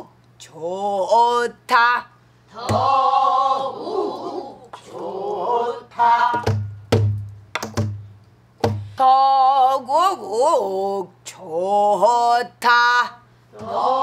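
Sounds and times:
barrel drum thumps: 0:02.6 - 0:02.9, 0:06.3 - 0:09.0.

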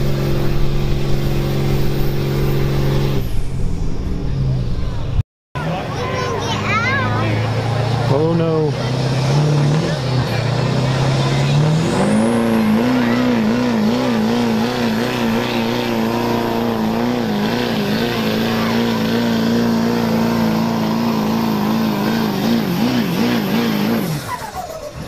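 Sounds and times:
diesel engine at full throttle: 0:00.0 - 0:25.0.

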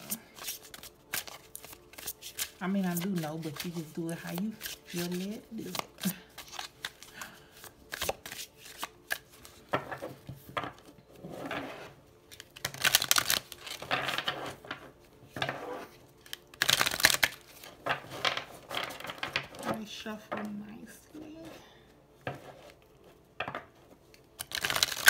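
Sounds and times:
cards shuffling: 0:00.0 - 0:09.7, 0:11.6 - 0:14.8, 0:15.5 - 0:19.7, 0:24.4 - 0:25.0.

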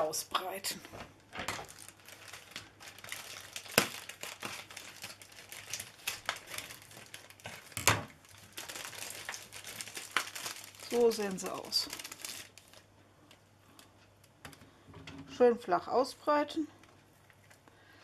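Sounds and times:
plastic film crinkling: 0:00.0 - 0:14.6
scissors cutting plastic: 0:01.4 - 0:08.1.

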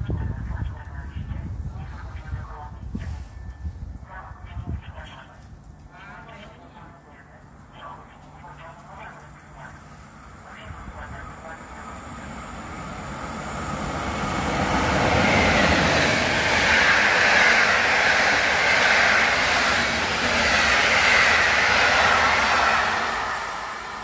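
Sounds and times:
train passing at speed: 0:09.3 - 0:24.0.

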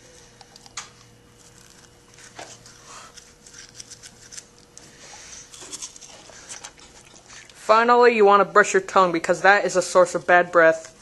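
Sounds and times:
faint steady hum: 0:00.0 - 0:11.0
toothbrush scrubbing teeth: 0:01.4 - 0:07.6.

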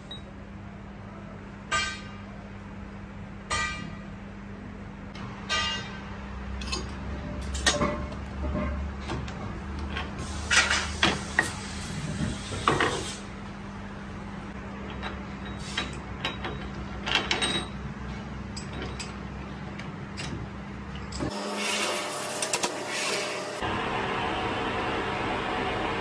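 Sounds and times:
steel parts clanking on chuck: 0:06.6 - 0:11.6, 0:14.9 - 0:19.2
low machine hum: 0:13.2 - 0:26.0.

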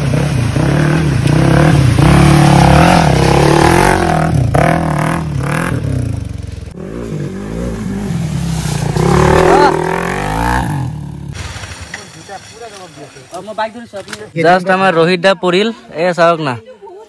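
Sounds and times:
motorcycle engine revving: 0:00.0 - 0:11.4
motorcycle splashing through water: 0:00.0 - 0:11.4.

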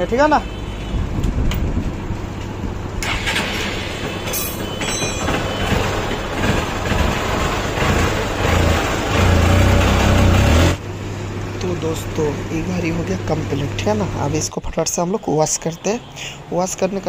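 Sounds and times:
engine clatter: 0:01.2 - 0:14.5
motorcycle engine running: 0:05.3 - 0:11.4.

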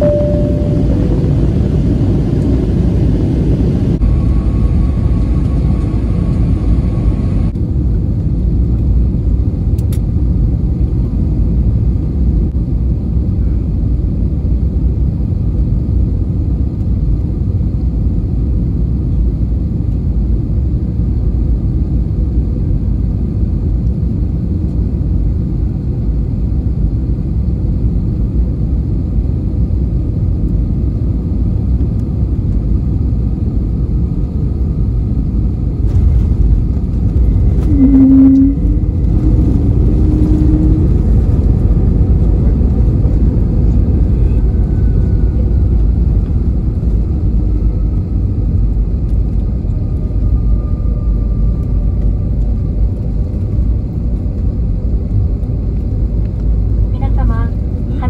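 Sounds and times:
faint high tone: 0:00.0 - 0:01.4, 0:37.7 - 0:39.4
aircraft engines and airflow rumble: 0:00.0 - 0:58.0.

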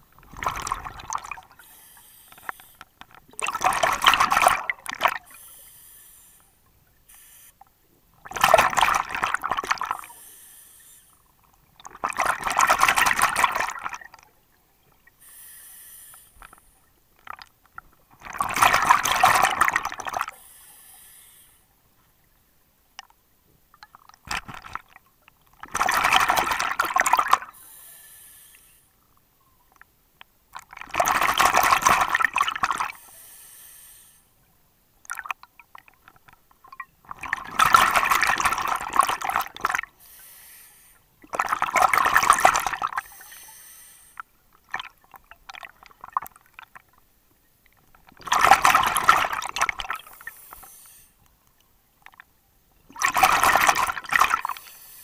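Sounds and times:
bubbling exhaled air underwater: 0:00.0 - 0:01.7, 0:02.4 - 0:05.4, 0:08.2 - 0:10.2, 0:48.0 - 0:50.4, 0:52.9 - 0:54.6
regulator hiss: 0:15.2 - 0:16.8, 0:40.0 - 0:41.1.

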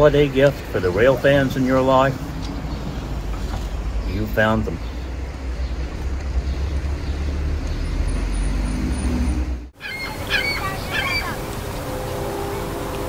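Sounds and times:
geese honking: 0:09.8 - 0:13.0.

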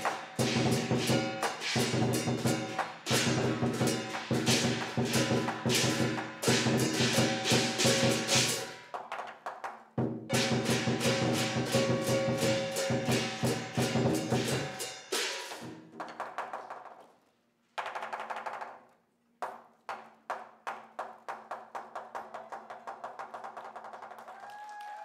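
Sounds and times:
crashing cymbals: 0:00.0 - 0:08.8, 0:10.3 - 0:15.7
drum beating: 0:00.0 - 0:17.0.

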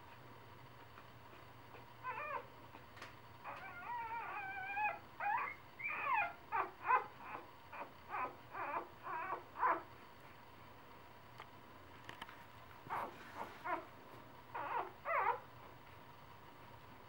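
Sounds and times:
puppies whimpering and squealing: 0:02.0 - 0:02.5, 0:03.4 - 0:09.9, 0:12.9 - 0:13.9, 0:14.5 - 0:15.5.

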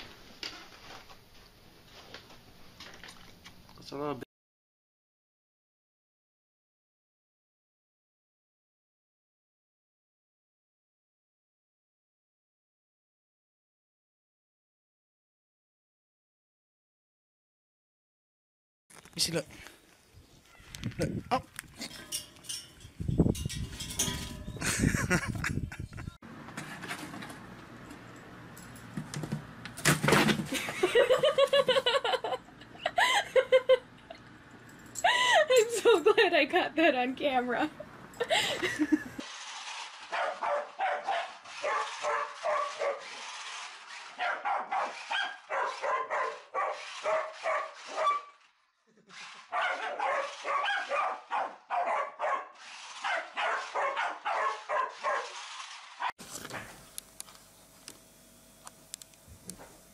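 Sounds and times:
person laughing: 0:24.6 - 0:26.2, 0:30.5 - 0:34.2, 0:35.0 - 0:36.8, 0:37.7 - 0:39.2
dog barking: 0:40.1 - 0:43.1, 0:44.2 - 0:48.3, 0:49.5 - 0:55.4.

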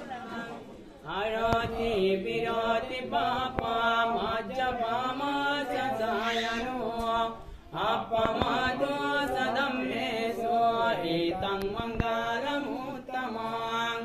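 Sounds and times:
man chanting: 0:00.3 - 0:14.0.

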